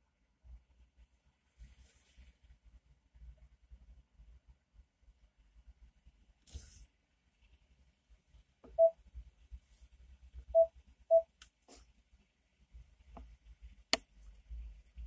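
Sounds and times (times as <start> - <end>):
short electronic beeps: 8.7 - 9.0, 10.6 - 11.3.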